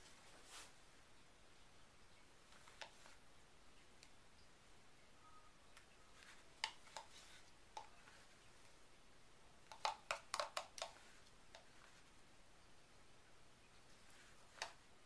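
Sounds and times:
spatula tapping plastic jug: 6.6 - 8.0, 9.6 - 11.7.

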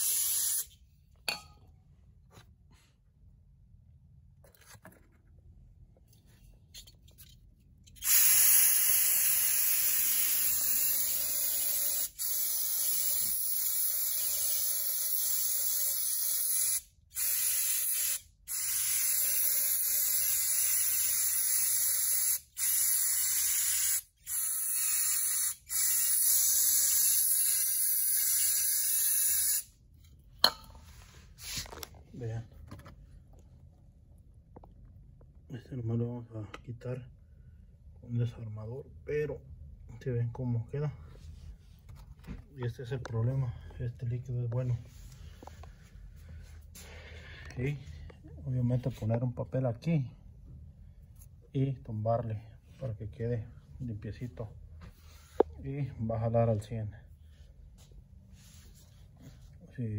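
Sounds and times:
aerosol spray hissing: 0.0 - 0.7, 8.0 - 29.7.

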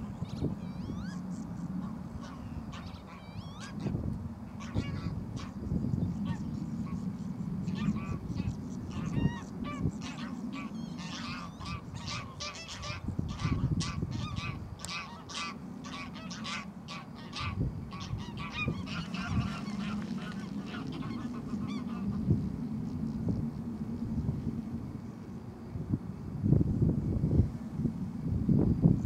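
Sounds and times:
low steady rumble: 0.0 - 29.0
geese honking: 1.8 - 4.0, 4.6 - 5.6, 6.2 - 7.0, 7.6 - 22.3
wings flapping in water: 18.8 - 21.5.

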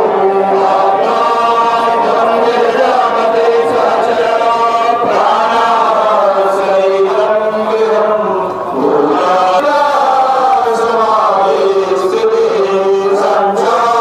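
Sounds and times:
voices chanting a hymn: 0.0 - 14.0.

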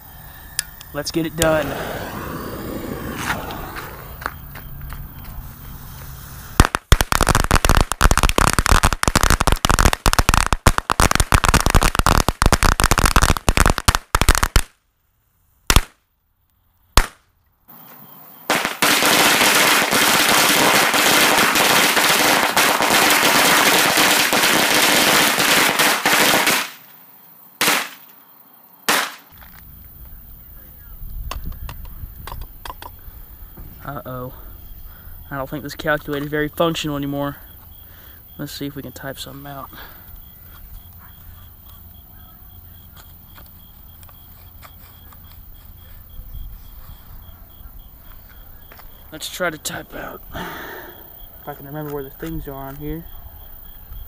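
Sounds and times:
firecrackers crackling: 1.0 - 14.8, 15.7 - 16.0, 17.0 - 17.2, 18.5 - 26.9, 27.6 - 28.1, 28.9 - 29.4
firecracker bangs: 6.5 - 14.7, 18.5 - 26.8, 27.6 - 28.0, 28.9 - 29.3.

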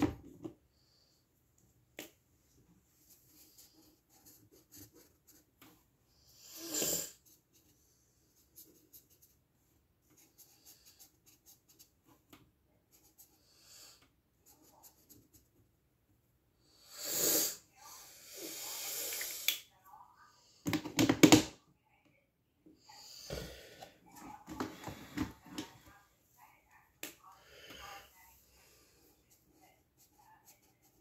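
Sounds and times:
pen scratching on paper: 3.1 - 5.5, 29.3 - 31.0.

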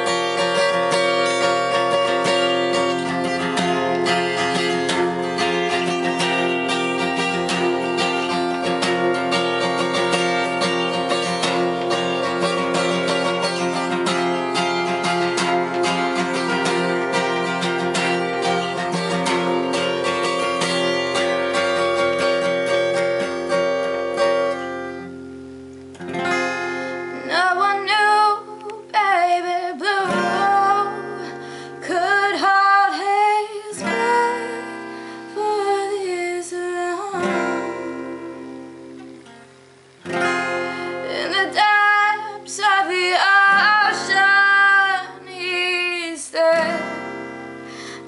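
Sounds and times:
acoustic guitar strumming: 0.0 - 48.0
woman singing: 27.2 - 38.8, 40.7 - 48.0.

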